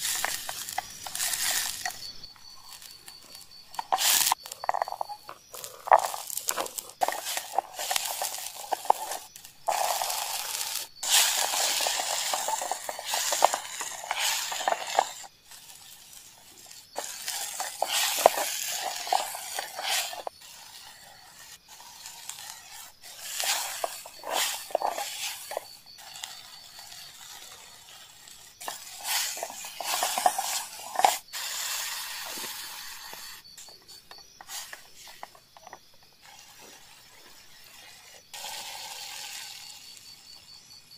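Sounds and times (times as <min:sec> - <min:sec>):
wooden spatula scraping pot: 0:00.0 - 0:39.8
vegetables sizzling in a pot: 0:00.0 - 0:40.9.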